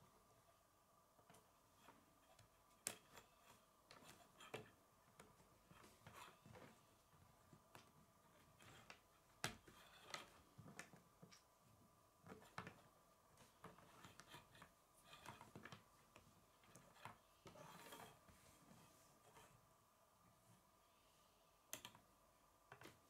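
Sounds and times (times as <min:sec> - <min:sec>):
rubbing scrape on tabletop: 0:17.5 - 0:19.6.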